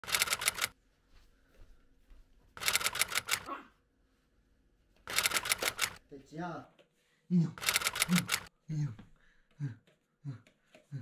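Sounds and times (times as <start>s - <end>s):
rapid sharp clicking: 0.0s - 0.7s, 2.6s - 3.4s, 5.1s - 6.0s, 7.6s - 8.5s.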